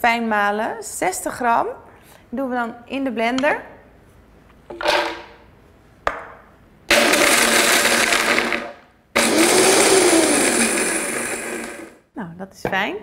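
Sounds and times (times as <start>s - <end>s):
blender grinding nuts: 6.9s - 12.0s.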